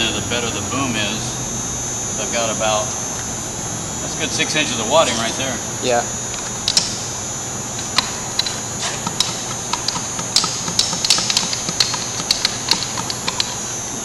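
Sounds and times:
electrical hum: 0.0s - 14.0s
ramrod clicks and taps: 6.7s - 6.9s, 7.8s - 13.6s.

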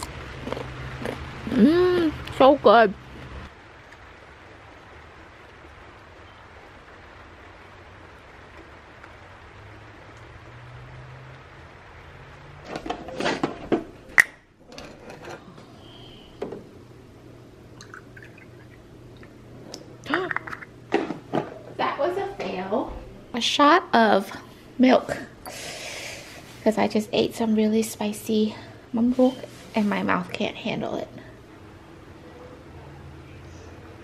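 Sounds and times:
light rain falling: 0.0s - 34.0s
milk pouring into mug: 17.8s - 19.3s.

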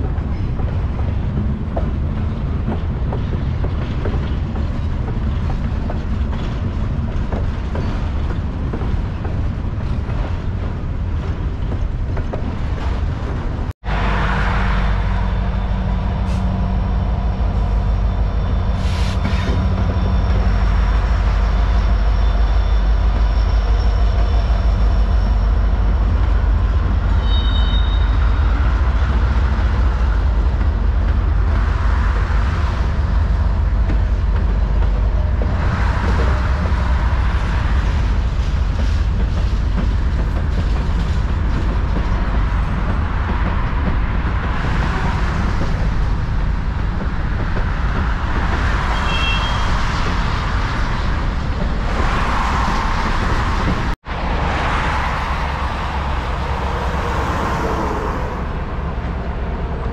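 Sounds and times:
freight train rumbling on rails: 0.0s - 59.9s
highway traffic: 0.0s - 59.9s
train wheels squealing: 14.2s - 28.9s, 48.6s - 50.2s.

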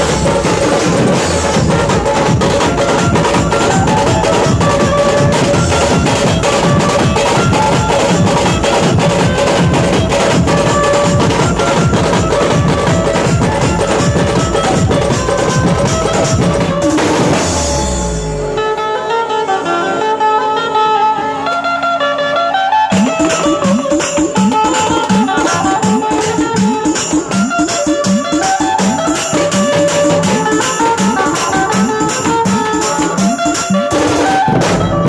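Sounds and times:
barrel drums and snare drum: 0.0s - 18.2s, 22.9s - 35.0s
melody of separate notes: 22.8s - 35.0s
sustained melody line: 22.8s - 35.0s.

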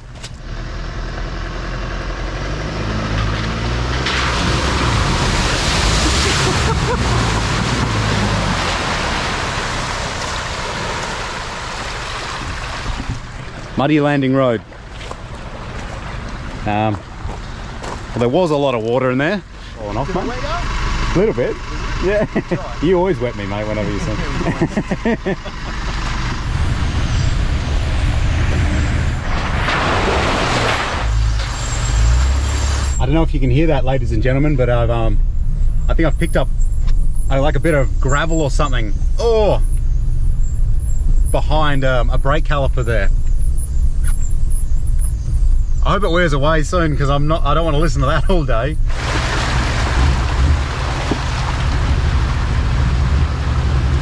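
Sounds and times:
engine working under load: 0.0s - 54.0s
water splashing: 3.8s - 19.0s, 28.0s - 33.0s, 48.8s - 54.0s.

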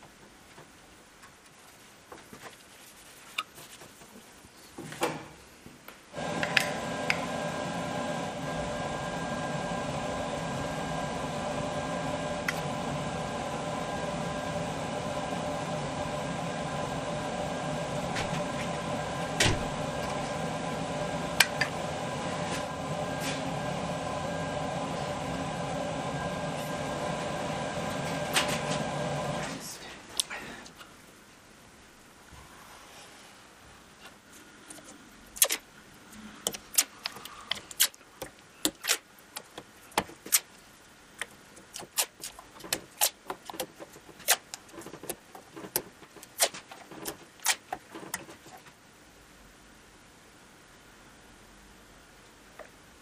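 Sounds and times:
machine humming: 6.2s - 29.6s.

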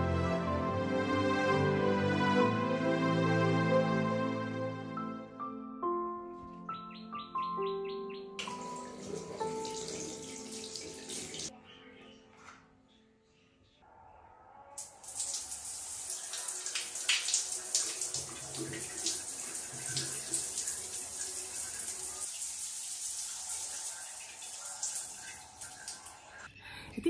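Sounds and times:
running water splashing: 8.4s - 11.5s, 14.8s - 26.5s.

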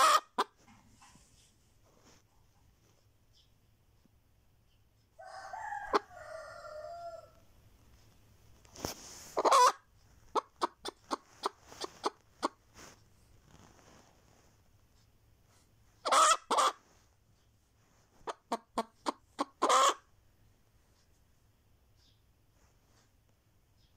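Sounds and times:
hen cackling and clucking: 0.0s - 0.6s, 5.1s - 7.5s, 9.2s - 12.6s, 16.0s - 16.9s, 18.2s - 20.2s.

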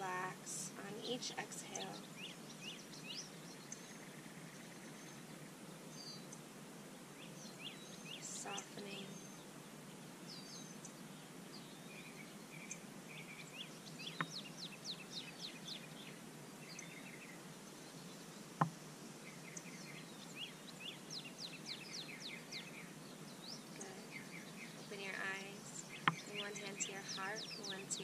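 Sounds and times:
birds singing: 0.0s - 28.0s
outdoor hiss: 0.0s - 28.0s.

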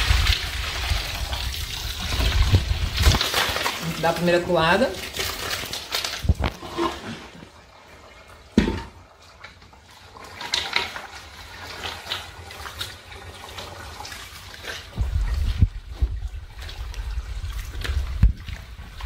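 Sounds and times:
pulp poured into metal basin: 0.0s - 7.7s
wet squelching and sloshing: 0.0s - 19.0s.

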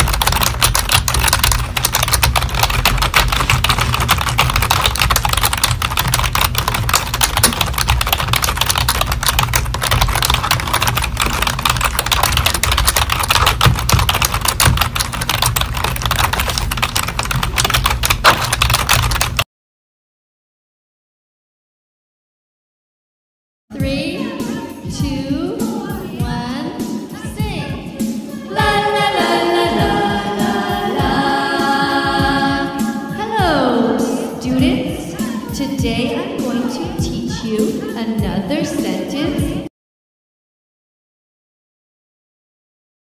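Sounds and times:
keyboard typing: 0.0s - 19.5s.

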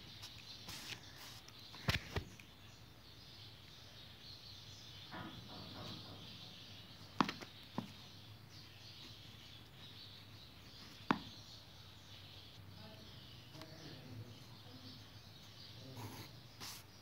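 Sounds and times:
faint bird chirping: 0.0s - 17.0s.

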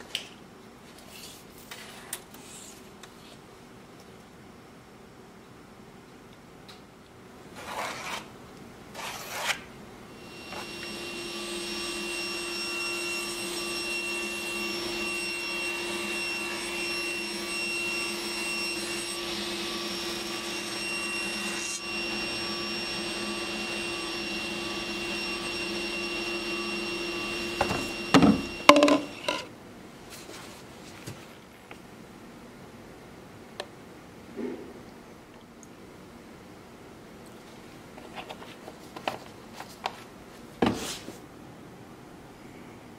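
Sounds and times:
table saw whining: 10.1s - 29.5s.

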